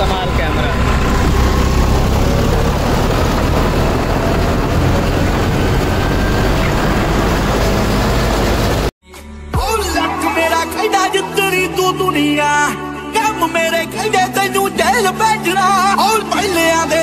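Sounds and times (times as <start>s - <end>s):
tractor diesel engine running: 0.0s - 8.9s
music: 9.0s - 17.0s.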